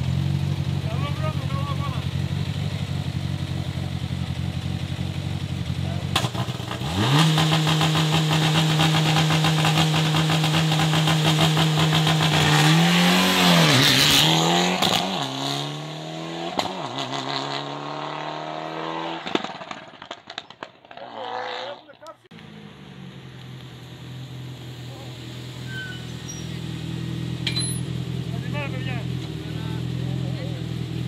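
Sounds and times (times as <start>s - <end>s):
car pulling away with gear changes: 0.0s - 31.0s
rally car engine revving: 0.0s - 31.0s.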